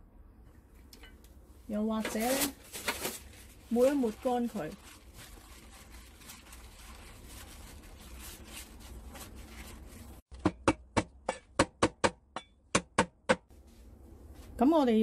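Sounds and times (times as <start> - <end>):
paper towel rustling: 2.0 - 10.2.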